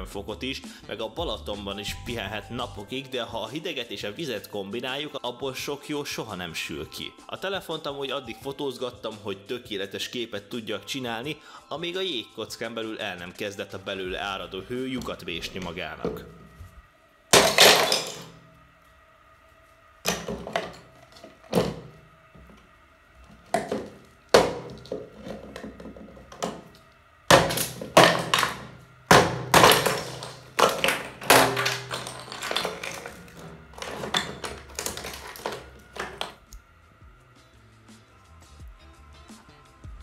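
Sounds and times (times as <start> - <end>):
hammer cracking ice: 17.3 - 18.3, 20.1 - 21.8, 23.5 - 26.7, 27.3 - 36.3.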